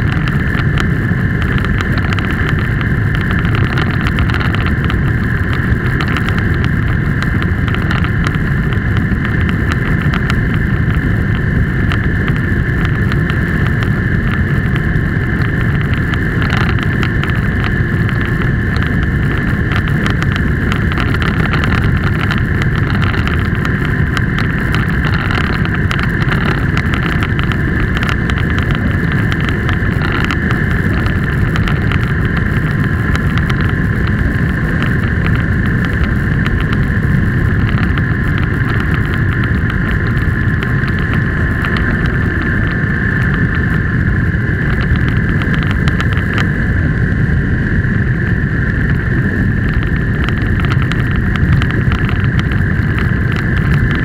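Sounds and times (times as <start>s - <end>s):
vehicle engine and road noise: 0.0s - 54.0s.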